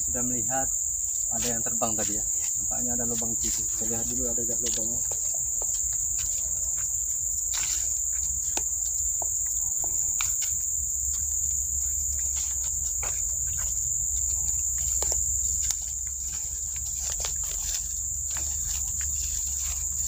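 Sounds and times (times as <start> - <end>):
footsteps on dry leaves: 0.0 - 20.0
high-pitched insect drone: 0.0 - 20.0.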